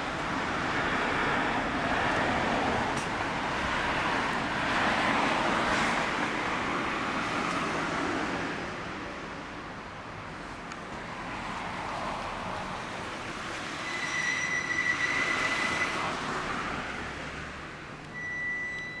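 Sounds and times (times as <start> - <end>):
road and traffic noise: 0.0 - 19.0
high squeal: 13.7 - 16.1.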